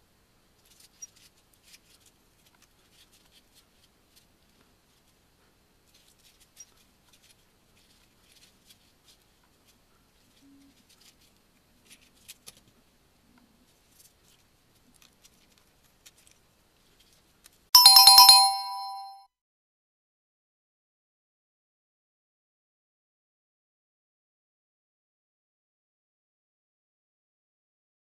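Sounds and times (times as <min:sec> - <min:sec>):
bell ringing in fast trill: 0:17.8 - 0:19.2.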